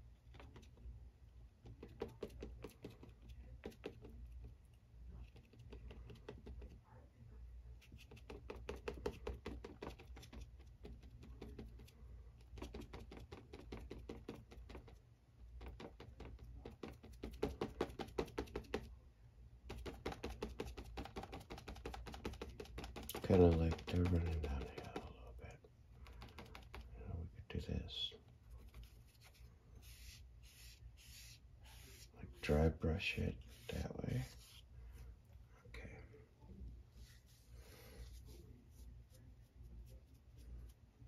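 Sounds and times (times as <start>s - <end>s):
paintbrush tapping on paper: 0.3s - 0.8s, 1.6s - 4.5s, 5.2s - 6.8s, 7.8s - 18.9s, 19.6s - 25.2s, 26.0s - 26.9s.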